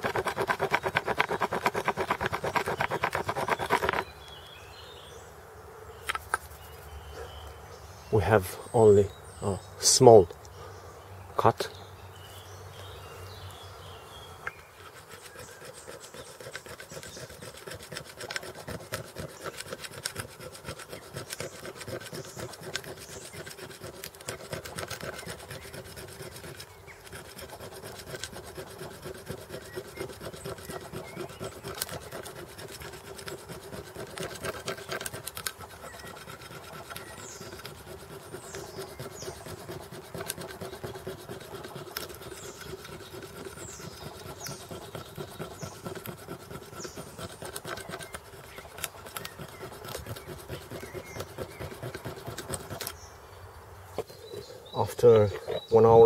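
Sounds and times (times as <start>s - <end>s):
stone sawing antler: 0.0s - 4.2s, 14.8s - 53.0s.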